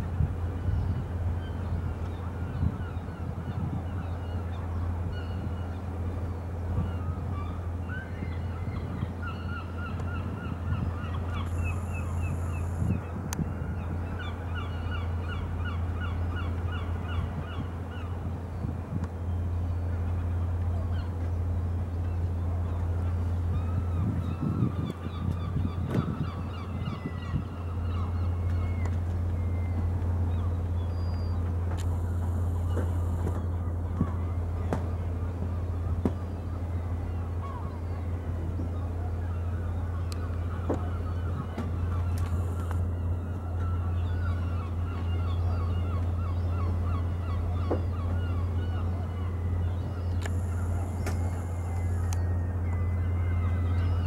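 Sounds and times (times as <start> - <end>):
steady low hum: 0.0 - 54.0
gulls calling: 0.4 - 54.0.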